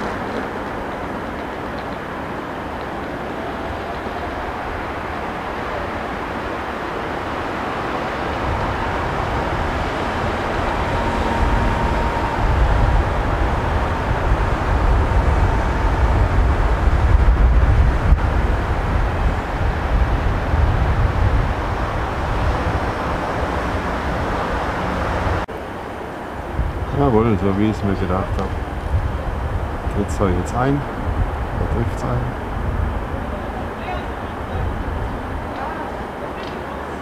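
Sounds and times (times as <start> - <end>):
faint steady tone: 3.0 - 17.8
low rumble: 8.1 - 25.5.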